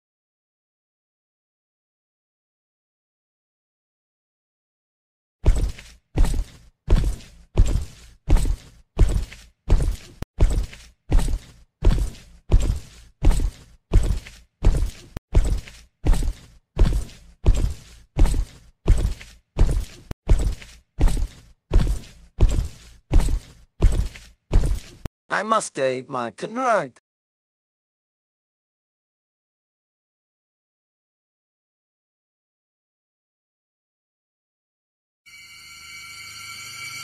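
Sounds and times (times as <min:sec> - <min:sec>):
heavy footsteps thudding: 0:05.4 - 0:25.1.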